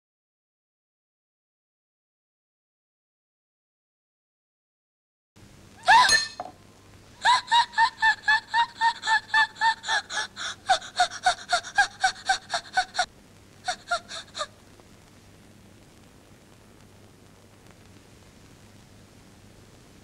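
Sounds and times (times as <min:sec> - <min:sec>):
woman gasping: 0:09.8 - 0:13.1, 0:13.7 - 0:14.5.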